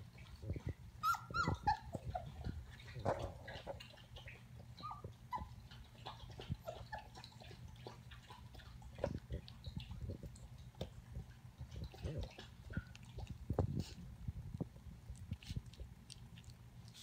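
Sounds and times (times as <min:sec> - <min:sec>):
puppy paws clicking and scuffing: 0:00.1 - 0:17.0
puppy whimpering and squeaking: 0:01.0 - 0:02.7, 0:04.2 - 0:07.3.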